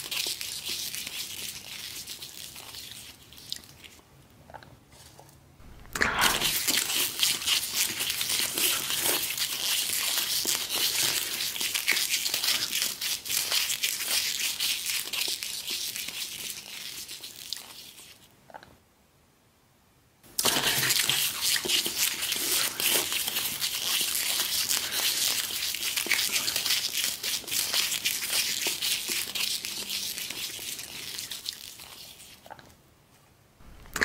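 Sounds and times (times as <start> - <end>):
paper napkin crinkling: 5.0 - 14.4, 20.6 - 32.4.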